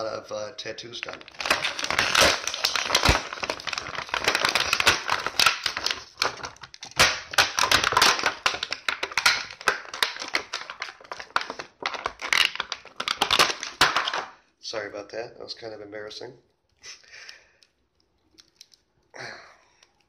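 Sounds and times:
plastic packaging crinkling: 0:00.8 - 0:14.3, 0:18.0 - 0:19.0.

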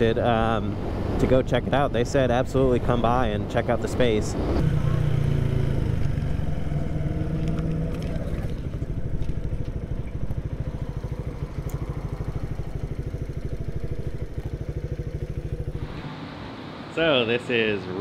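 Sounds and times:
motorcycle engine idling: 0:04.7 - 0:16.0.

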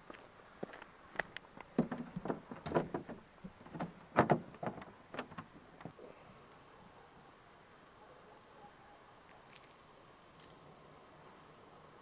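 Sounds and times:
plastic knocks and clicks: 0:01.8 - 0:05.5.

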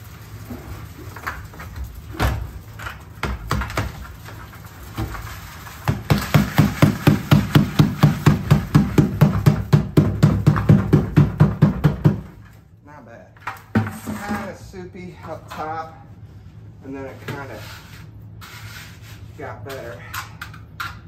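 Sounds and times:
bucket knocks and scrapes: 0:03.2 - 0:12.4, 0:13.4 - 0:14.6.

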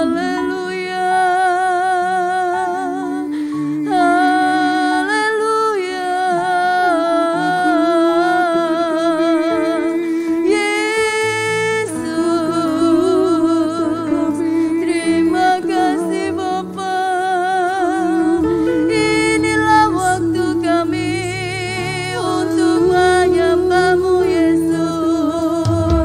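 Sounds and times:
woman singing: 0:00.0 - 0:26.0
sustained instrumental chords: 0:18.1 - 0:26.0.

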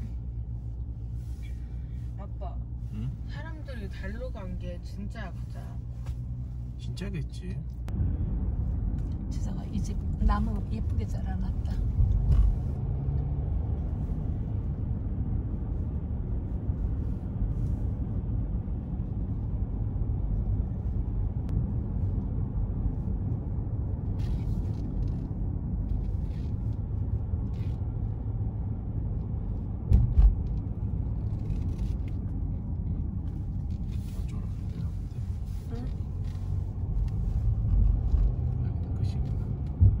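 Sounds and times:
car cabin road rumble: 0:00.0 - 0:40.0
brief thump: 0:29.9 - 0:30.5.

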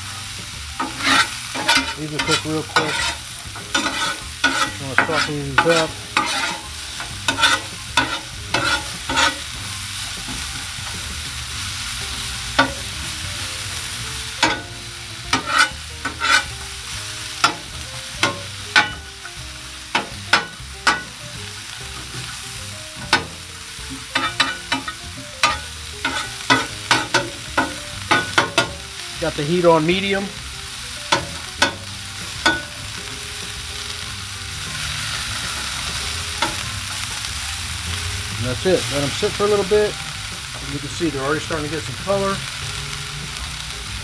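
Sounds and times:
onions sizzling on a griddle: 0:00.0 - 0:44.0
metal spatula scraping steel: 0:00.7 - 0:11.0, 0:12.6 - 0:13.0, 0:14.3 - 0:30.4, 0:31.1 - 0:32.8.

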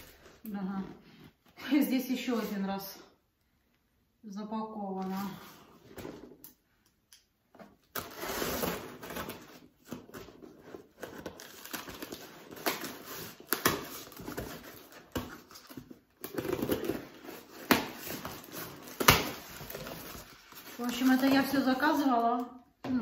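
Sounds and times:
packaging rustling and crinkling: 0:07.9 - 0:22.1.

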